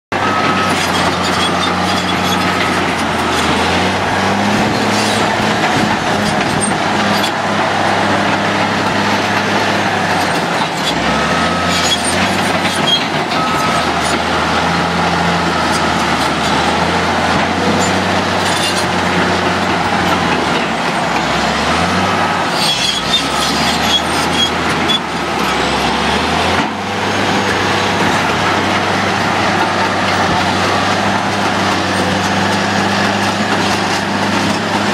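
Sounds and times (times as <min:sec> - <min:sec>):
bulldozer diesel engine: 0:00.1 - 0:34.9
steel tracks clattering: 0:00.4 - 0:14.9.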